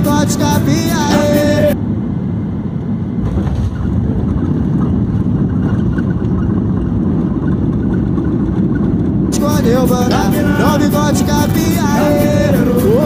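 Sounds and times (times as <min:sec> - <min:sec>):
airliner wheels rumbling on runway: 0:00.0 - 0:13.0
jet engines roaring: 0:00.0 - 0:13.0.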